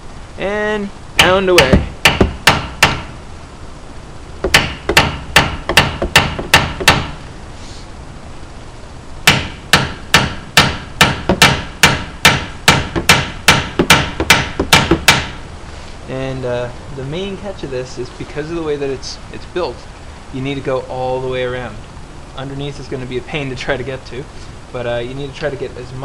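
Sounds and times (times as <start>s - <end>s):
hammer striking screwdriver on metal: 1.2s - 3.0s.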